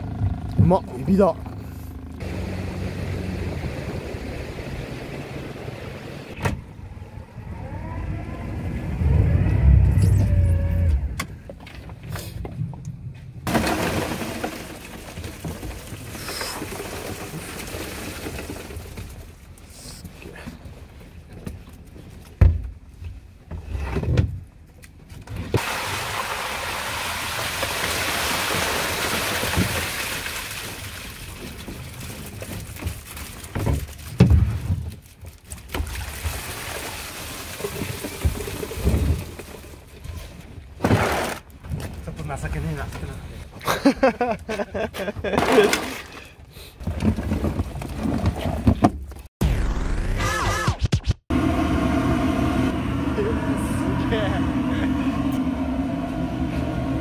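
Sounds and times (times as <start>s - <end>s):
boat engine running: 0.0s - 11.2s, 51.3s - 57.0s
water and shrimp pouring into basket: 13.5s - 19.4s, 25.6s - 39.7s.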